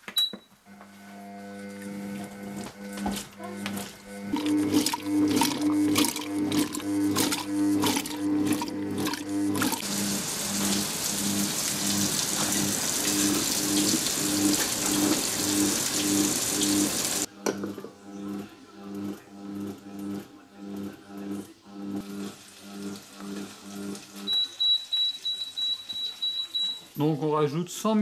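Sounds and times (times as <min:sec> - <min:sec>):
water boiling with hissing steam: 0:09.3 - 0:17.3.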